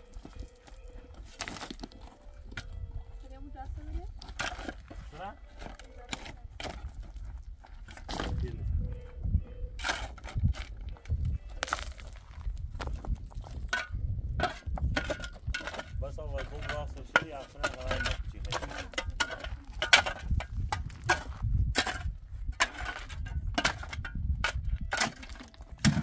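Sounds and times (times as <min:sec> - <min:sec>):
voice: 0:05.1 - 0:06.6, 0:08.2 - 0:09.0, 0:16.0 - 0:19.9.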